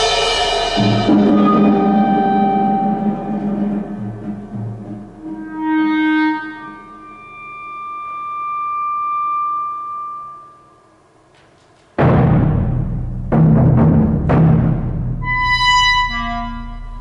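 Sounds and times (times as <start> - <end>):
loud percussion stroke: 0.0 - 5.9, 12.0 - 17.0
clarinet notes: 1.1 - 10.8, 15.2 - 17.0.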